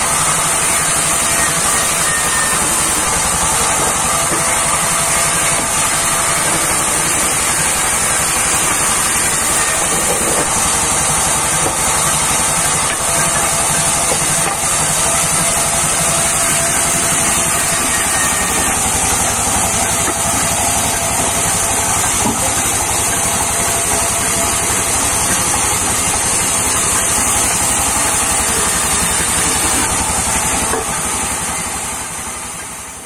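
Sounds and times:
band saw running: 0:00.0 - 0:33.0.

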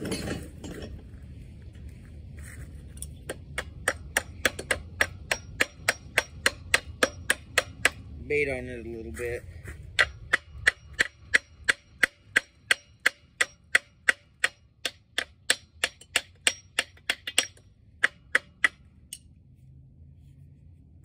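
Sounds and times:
hammer striking metal: 0:03.3 - 0:08.1, 0:10.0 - 0:19.3.

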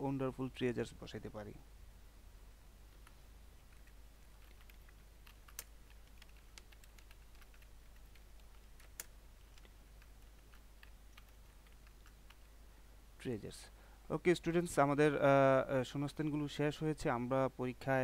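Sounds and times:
keyboard typing: 0:02.9 - 0:12.5.

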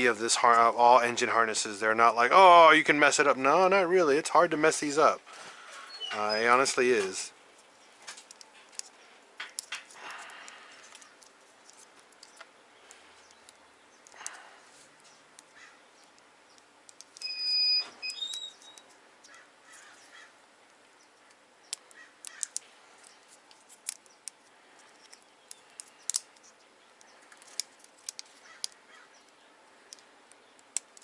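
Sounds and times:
plastic clicks and snaps: 0:08.1 - 0:14.4, 0:15.4 - 0:17.3, 0:21.3 - 0:31.0.

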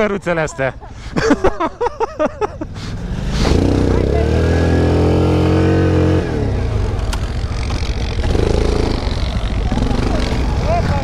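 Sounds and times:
atv engine revving: 0:02.6 - 0:11.0.

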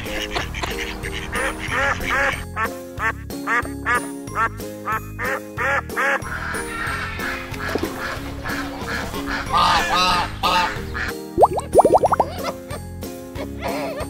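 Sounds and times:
ducks quacking: 0:00.0 - 0:04.1, 0:05.2 - 0:11.2
children's background music: 0:00.0 - 0:14.0.

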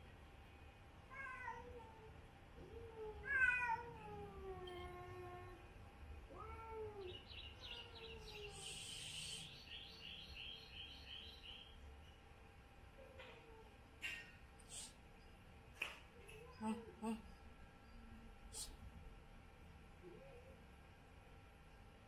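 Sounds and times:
cats meowing and yowling: 0:01.1 - 0:05.7, 0:06.3 - 0:09.4.

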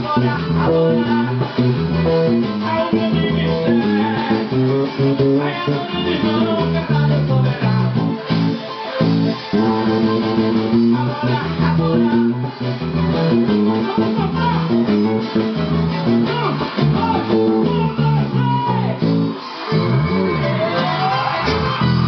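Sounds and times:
electric bass line: 0:00.0 - 0:22.0.

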